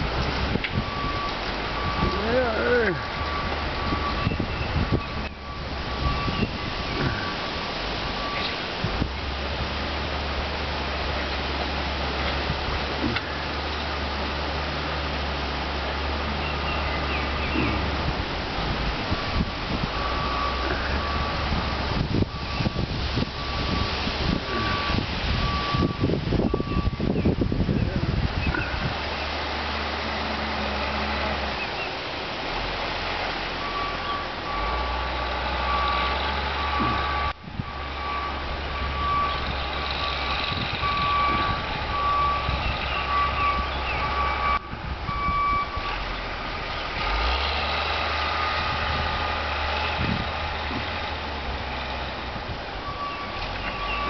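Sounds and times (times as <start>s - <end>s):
heavy vehicle engine rumble: 0.0s - 54.0s
reversing alarm beeping: 0.7s - 8.6s, 19.8s - 27.4s, 33.6s - 46.1s, 52.8s - 54.0s.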